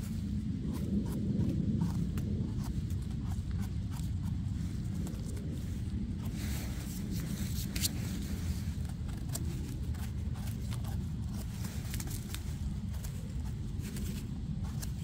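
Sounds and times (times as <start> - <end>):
low microphone rumble: 0.0 - 15.0
twigs cracking: 3.9 - 15.0
footsteps rustling through leaves: 4.3 - 15.0.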